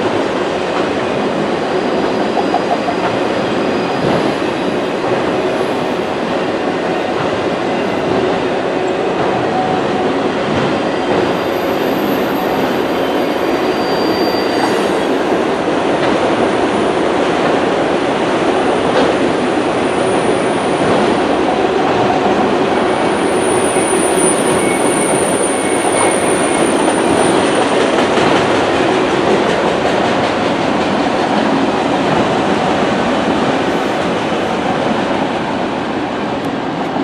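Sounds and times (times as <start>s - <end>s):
train wheels rumbling on rails: 0.0s - 37.0s
high wheel squeal: 1.5s - 6.2s, 10.9s - 15.2s, 22.9s - 27.6s.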